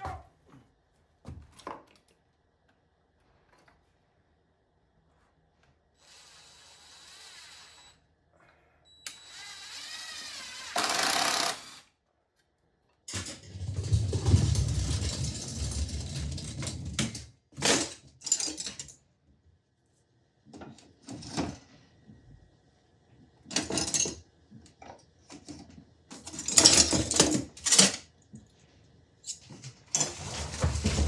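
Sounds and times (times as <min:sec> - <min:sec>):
cordless drill motor whine: 0:06.0 - 0:08.0, 0:09.0 - 0:11.9
rumbling scraping handling noise: 0:29.5 - 0:31.0.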